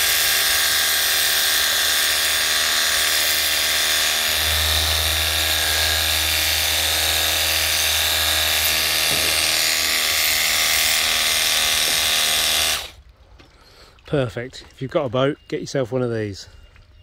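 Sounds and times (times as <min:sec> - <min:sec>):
pressure washer low buzz: 0:00.0 - 0:13.0.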